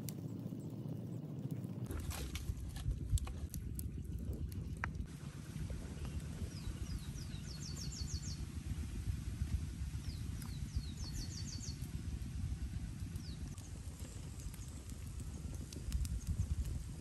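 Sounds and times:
wood fire rumbling and crackling: 0.0 - 17.0
birds chirping: 5.4 - 8.9, 10.0 - 12.0.

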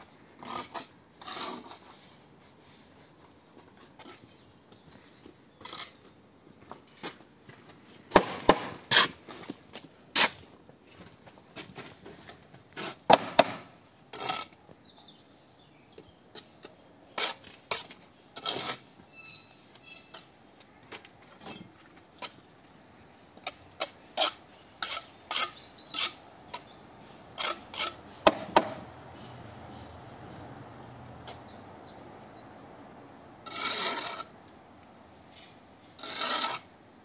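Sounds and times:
trowel scraping and slapping mortar: 0.4 - 2.5, 8.2 - 10.6, 16.3 - 19.0, 27.3 - 28.0, 33.4 - 34.4, 35.3 - 36.8.

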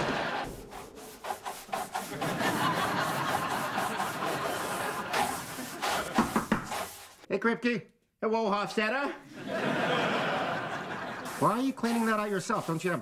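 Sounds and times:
studio audience laughing: 0.0 - 0.5, 1.9 - 6.5, 9.2 - 12.1.

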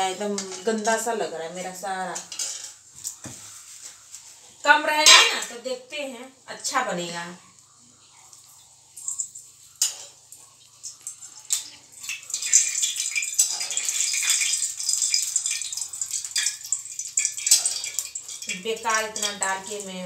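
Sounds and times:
hot oil sizzling: 0.0 - 20.0
steel spoon clinking on bowls: 13.2 - 19.5.

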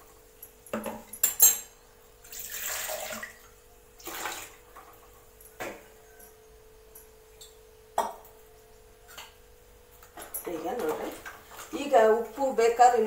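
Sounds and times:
water pouring into metal pot: 2.2 - 3.4.

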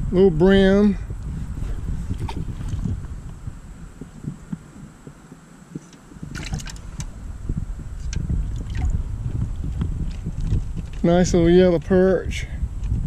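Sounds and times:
water splashing in aquarium: 6.3 - 6.8.

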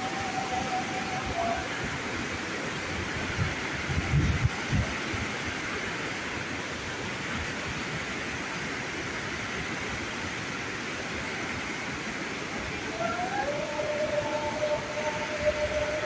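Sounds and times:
waterfall and river rapids: 0.0 - 16.0
thin steady tone: 12.9 - 16.0.

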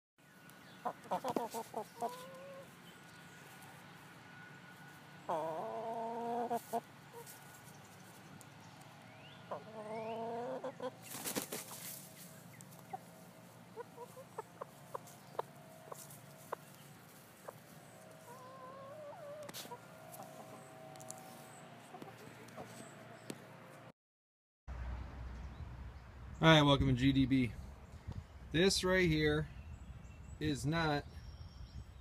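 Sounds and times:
drawn-out chicken calls: 0.7 - 8.4, 9.3 - 23.4
chickens clucking: 0.8 - 3.8, 5.2 - 8.4, 9.5 - 23.5.

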